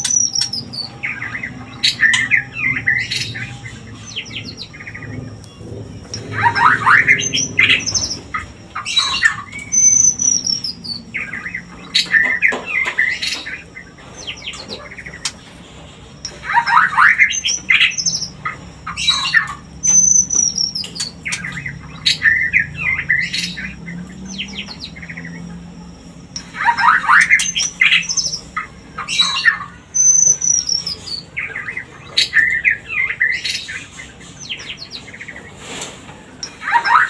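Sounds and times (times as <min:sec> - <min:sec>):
bird singing whistled phrases: 0:06.0 - 0:15.3, 0:16.2 - 0:25.5, 0:26.4 - 0:35.3.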